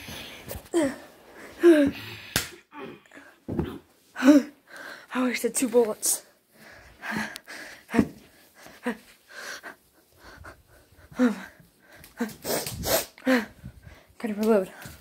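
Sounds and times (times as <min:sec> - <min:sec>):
person breathing hard: 0:00.0 - 0:03.4, 0:06.4 - 0:14.2.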